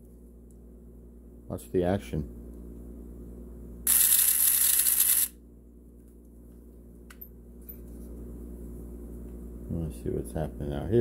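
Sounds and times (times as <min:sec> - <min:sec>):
small electric motor whirring: 0:03.9 - 0:05.4.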